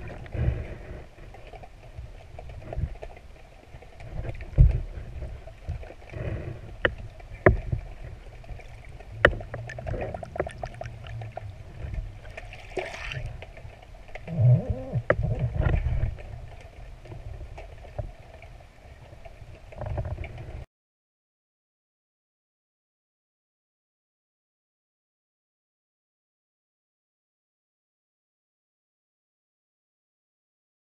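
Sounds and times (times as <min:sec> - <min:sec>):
underwater rumble of moving water: 0:00.0 - 0:20.7.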